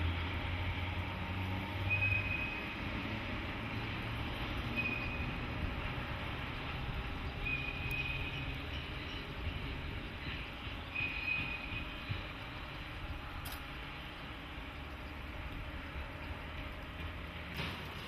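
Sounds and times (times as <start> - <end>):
locomotive low rumble: 0.0 - 18.0
high-pitched wheel squeals: 1.8 - 2.8, 4.6 - 5.6, 7.3 - 12.2.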